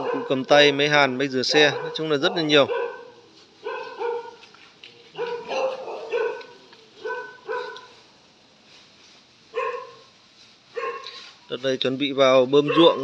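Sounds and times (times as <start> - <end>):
dog barking: 0.0 - 0.6, 1.5 - 4.4, 5.2 - 7.9, 9.5 - 10.1, 10.7 - 11.2, 12.6 - 13.0.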